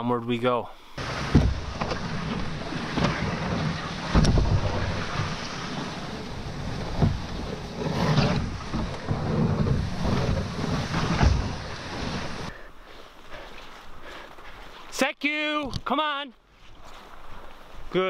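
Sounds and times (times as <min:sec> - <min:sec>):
knocks and bumps on hull: 0:01.0 - 0:12.5
canoe scraping over brush: 0:01.0 - 0:15.0, 0:16.5 - 0:18.0.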